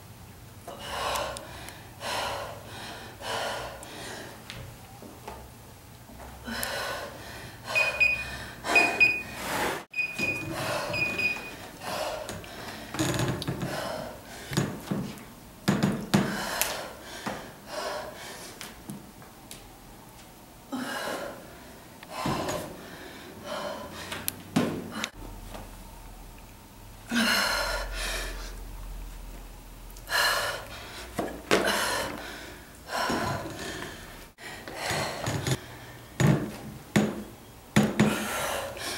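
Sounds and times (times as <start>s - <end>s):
woman breathing hard: 0.7s - 4.5s, 6.4s - 14.8s, 16.2s - 18.7s, 20.7s - 24.3s, 27.1s - 28.7s, 30.0s - 36.2s, 38.0s - 38.9s
short high beeps: 7.8s - 11.6s.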